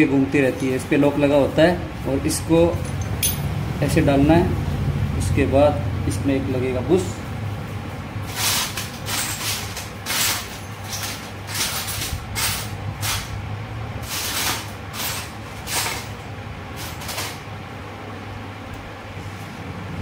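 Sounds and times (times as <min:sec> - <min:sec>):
steady low hum: 0:00.0 - 0:20.0
metallic scrapes and clinks: 0:02.7 - 0:03.5.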